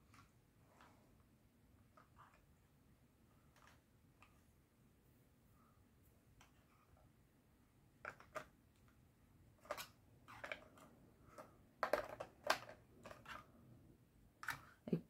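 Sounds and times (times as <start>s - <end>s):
plastic pieces clicking: 9.6s - 13.5s.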